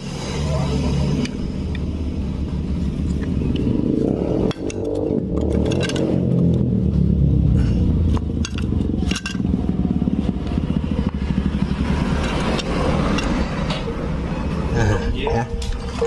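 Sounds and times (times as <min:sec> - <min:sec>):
motorcycle engine running: 0:00.0 - 0:14.7
metallic clicks and scrapes: 0:03.0 - 0:06.7, 0:08.1 - 0:09.6, 0:12.1 - 0:13.9.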